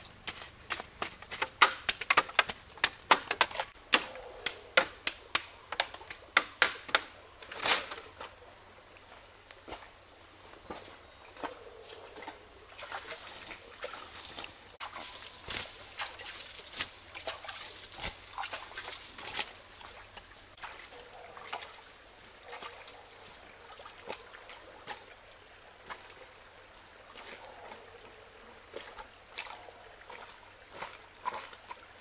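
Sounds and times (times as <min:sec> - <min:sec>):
stream water sloshing: 0:00.0 - 0:32.0
footsteps on dry leaves: 0:12.8 - 0:20.2.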